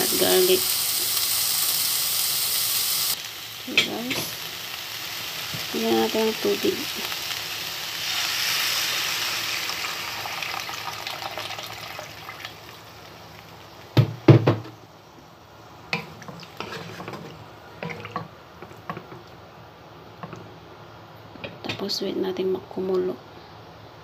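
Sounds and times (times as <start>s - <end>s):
water hissing in hot pan: 0.0s - 14.0s
loud knocks: 14.0s - 14.7s.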